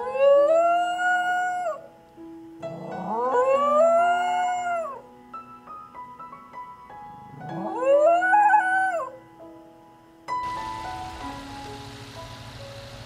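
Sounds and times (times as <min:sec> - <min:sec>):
dog howling: 0:00.0 - 0:01.9, 0:02.8 - 0:05.0, 0:07.5 - 0:09.2.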